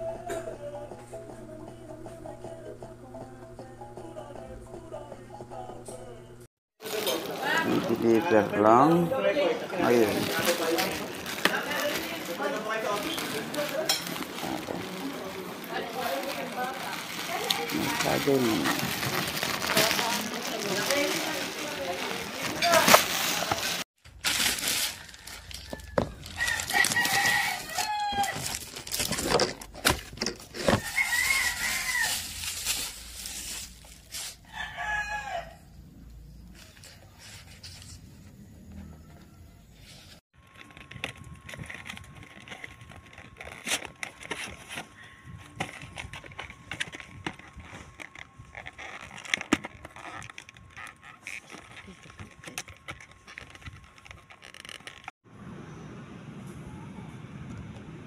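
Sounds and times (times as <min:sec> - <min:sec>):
plastic wrap crackling: 0:06.8 - 0:34.4, 0:40.4 - 0:55.2
rooster crowing: 0:24.8 - 0:28.5, 0:30.8 - 0:32.4, 0:34.4 - 0:35.8, 0:38.6 - 0:39.8
cardboard box clicking and rustling: 0:40.6 - 0:44.9.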